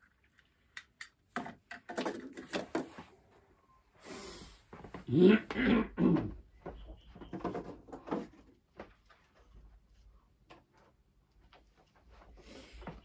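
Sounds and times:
knocks and rustling: 6.3 - 9.8.

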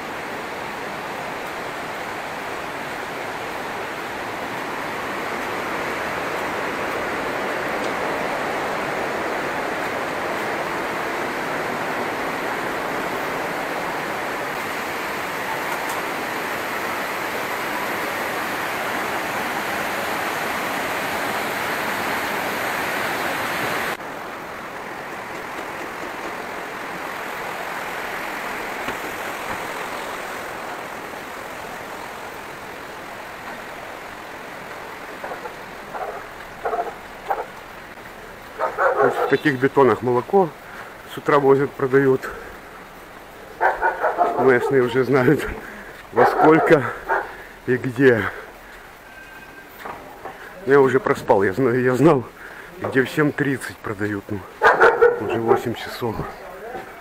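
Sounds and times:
fast-flowing river rushing: 0.0 - 57.0
dog barking: 35.2 - 37.5, 38.5 - 39.6, 43.5 - 47.5, 54.6 - 57.0.

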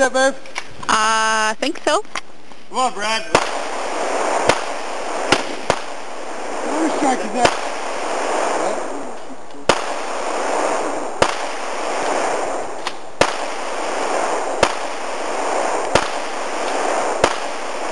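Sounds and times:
steady hiss: 0.0 - 17.9
pistol shots: 3.3 - 6.2, 7.4 - 8.6, 9.7 - 17.9.

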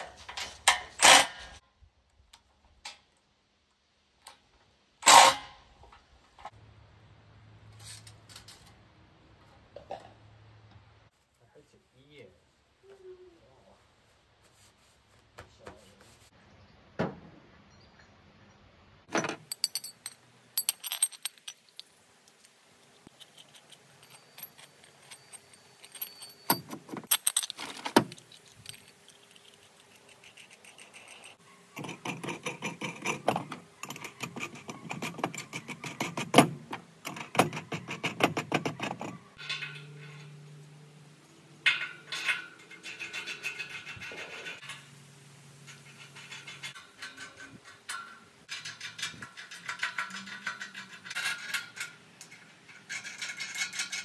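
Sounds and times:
metal hardware clinking: 19.1 - 22.0, 23.0 - 54.0.

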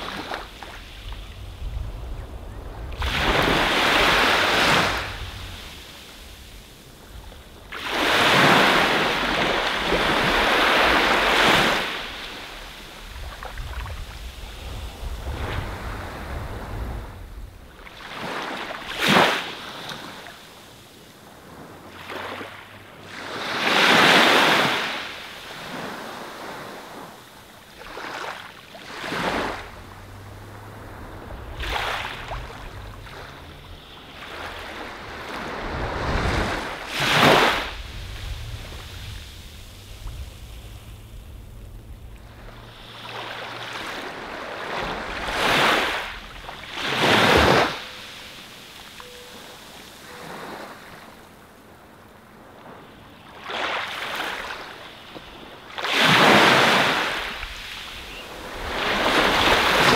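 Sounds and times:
sea waves breaking on beach: 0.0 - 59.9
low rumble: 0.6 - 7.8, 29.4 - 45.4.

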